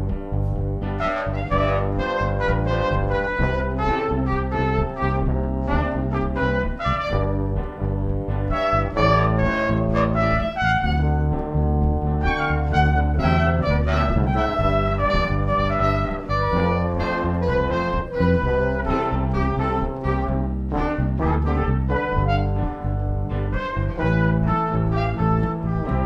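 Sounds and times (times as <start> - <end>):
background music melody: 0.0 - 26.0
sustained bass line: 0.0 - 26.0.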